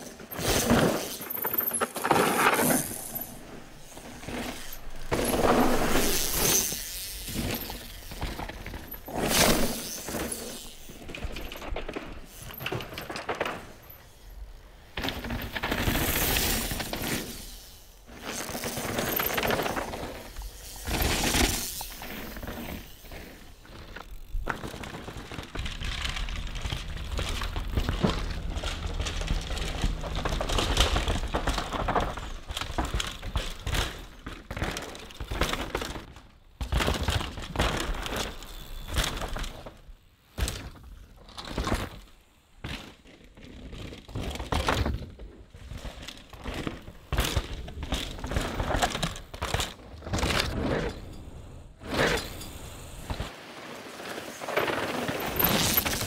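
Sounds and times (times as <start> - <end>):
bike chain and frame rattling: 0.2 - 36.1, 37.0 - 39.7, 42.7 - 53.0
tyres crunching and skidding on soil: 18.1 - 39.7, 53.1 - 56.0.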